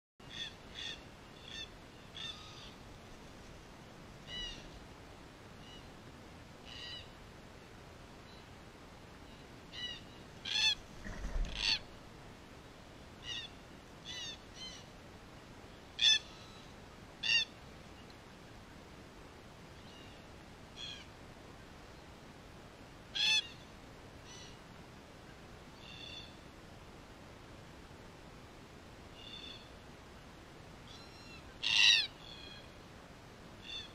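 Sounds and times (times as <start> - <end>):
cockatoos calling: 9.7 - 12.0.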